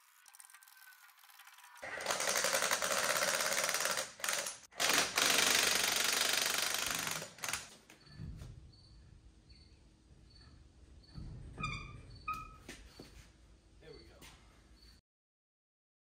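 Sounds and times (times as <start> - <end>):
impact wrench hammering: 2.0 - 8.3
short high squeaks: 11.6 - 13.2.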